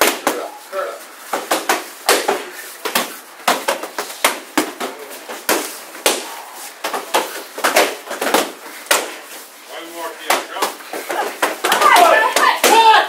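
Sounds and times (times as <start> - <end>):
strikes smacking padded shields: 11.4 - 13.0.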